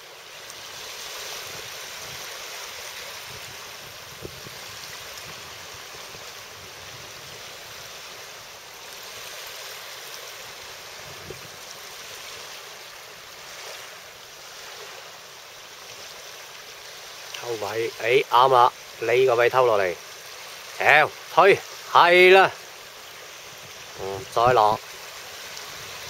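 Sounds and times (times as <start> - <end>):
choppy water washing: 0.0 - 26.0.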